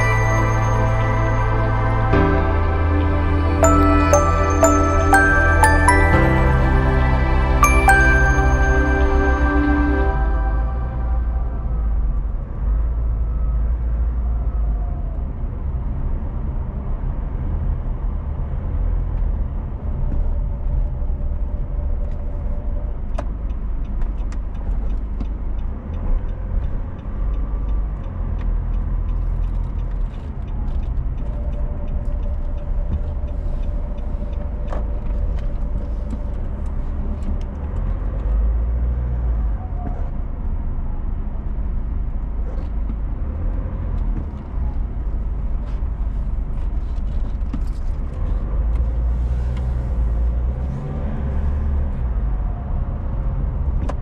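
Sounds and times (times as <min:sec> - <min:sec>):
car engine and road noise: 0:00.0 - 0:54.0.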